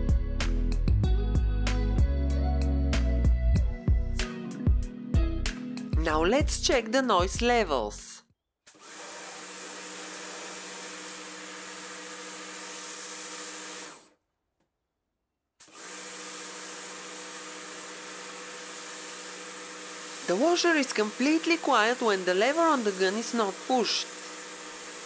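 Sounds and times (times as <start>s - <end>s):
pressure washer motor humming: 8.7s - 14.1s, 15.6s - 25.0s
water spray hissing: 8.8s - 14.1s, 15.6s - 25.0s.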